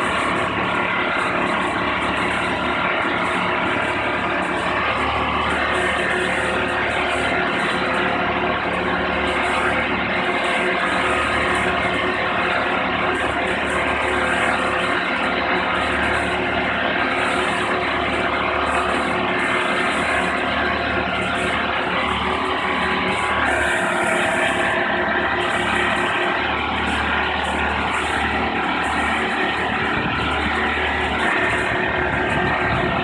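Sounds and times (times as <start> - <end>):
lift engine running under load: 0.0 - 33.0.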